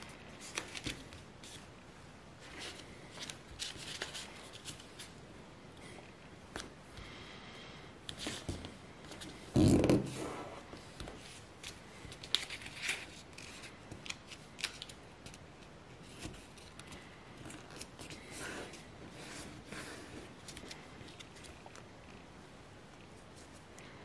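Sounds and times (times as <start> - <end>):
paper rustling and crinkling: 0.3 - 1.7, 2.4 - 5.1, 10.9 - 21.8.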